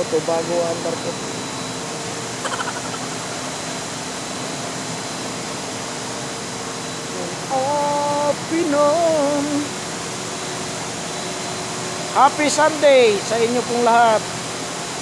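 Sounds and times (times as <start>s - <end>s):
condenser machinery rushing: 0.0s - 15.0s
man humming: 7.5s - 9.7s.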